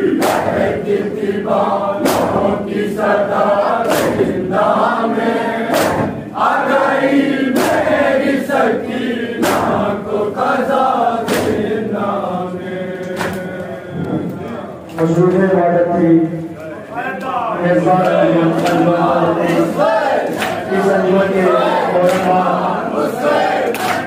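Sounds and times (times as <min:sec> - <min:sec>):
men chanting in unison: 0:00.0 - 0:14.9, 0:17.3 - 0:24.0
chest-beating slaps: 0:00.2 - 0:00.6, 0:02.0 - 0:02.5, 0:03.8 - 0:04.4, 0:05.7 - 0:06.2, 0:09.4 - 0:09.8, 0:11.2 - 0:11.7, 0:13.0 - 0:14.5, 0:18.0 - 0:20.6.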